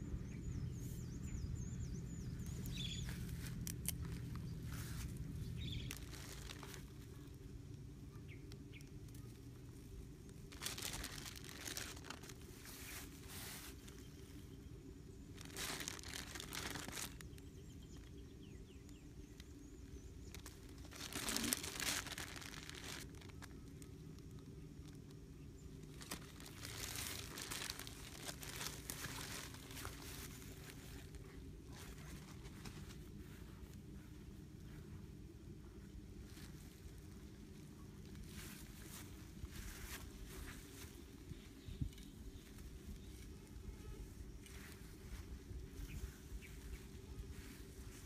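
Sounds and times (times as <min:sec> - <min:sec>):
faint bird chirps: 0:00.0 - 0:09.9, 0:10.6 - 0:48.0
low outdoor hum: 0:00.0 - 0:48.0
plastic bag crinkling: 0:02.8 - 0:07.4, 0:09.2 - 0:14.1, 0:15.3 - 0:18.1, 0:18.8 - 0:32.9.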